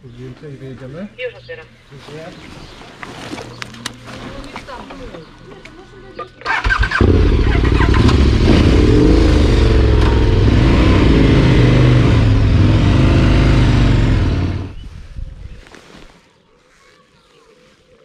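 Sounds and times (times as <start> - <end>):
motorcycle engine pulling away: 6.5 - 14.8.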